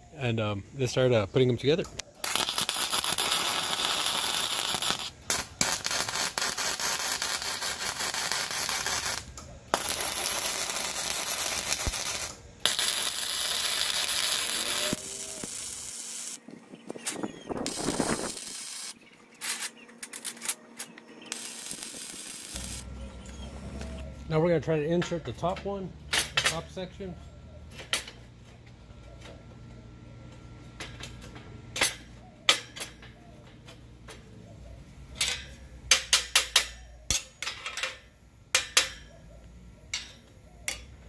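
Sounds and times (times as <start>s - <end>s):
welding arc crackling: 2.0s - 16.4s, 17.5s - 20.6s, 21.2s - 23.3s.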